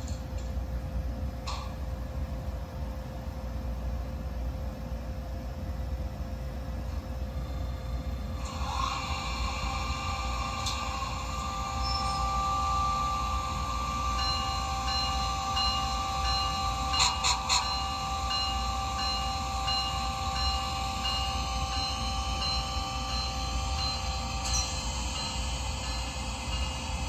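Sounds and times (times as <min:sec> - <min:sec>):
electric locomotive whine and hum: 0:00.0 - 0:27.0
bell-like tone: 0:14.2 - 0:26.9.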